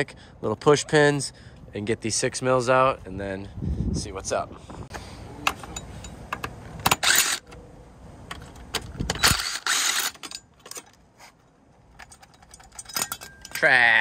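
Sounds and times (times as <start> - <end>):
tool clicks and rattles: 5.5 - 7.5, 8.3 - 11.0, 11.9 - 13.7
cordless drill spinning: 9.2 - 10.1.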